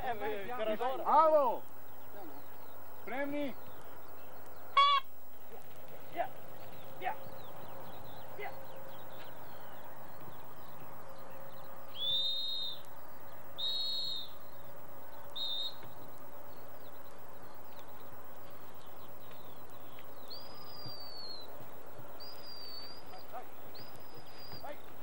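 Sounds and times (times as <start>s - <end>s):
small birds chirping faintly: 0.0s - 25.0s
dog whistle blasts: 4.8s - 5.1s, 12.0s - 12.8s, 13.6s - 14.3s.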